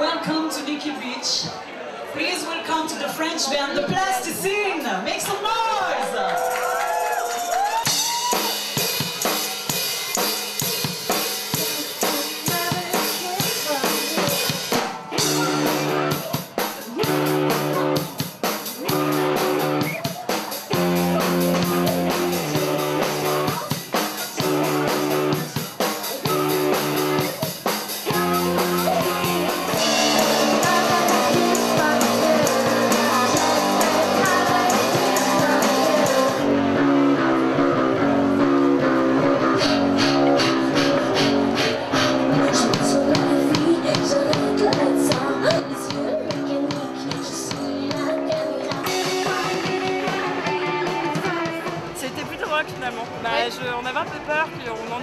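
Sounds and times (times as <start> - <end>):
electric guitar: 6.6 - 53.5
rock band playing live: 6.7 - 55.0
bass guitar: 7.5 - 52.2
bass drum and snare: 7.6 - 36.5, 39.5 - 53.3.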